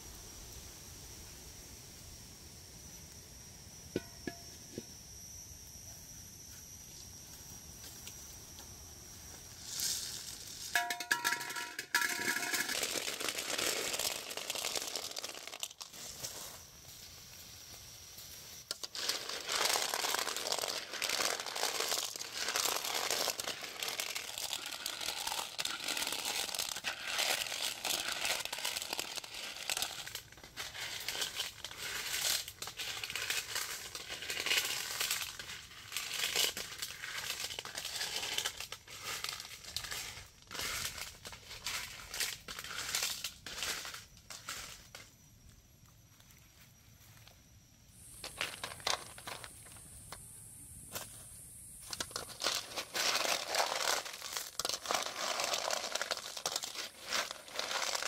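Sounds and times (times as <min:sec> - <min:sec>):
pebbles clattering in metal wok: 0:09.6 - 0:16.5, 0:18.6 - 0:45.1, 0:48.2 - 0:49.8, 0:51.8 - 0:58.0.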